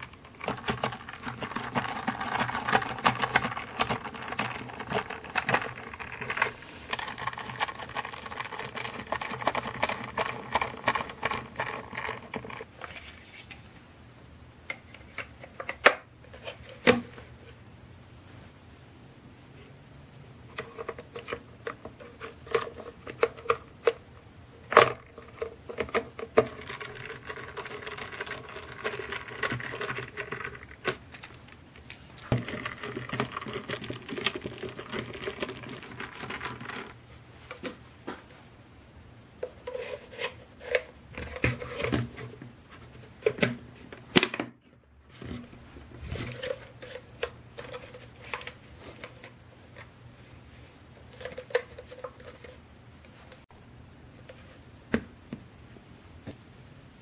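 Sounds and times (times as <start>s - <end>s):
plastic parts clicking and knocking: 0.0s - 12.7s, 20.5s - 37.0s, 39.4s - 45.5s, 46.2s - 49.9s, 51.0s - 52.6s.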